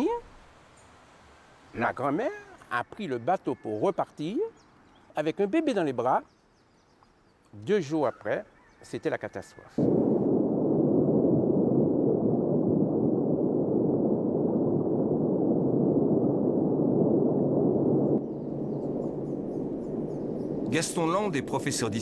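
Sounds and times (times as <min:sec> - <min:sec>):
volcano eruption rumble: 0:09.7 - 0:22.0.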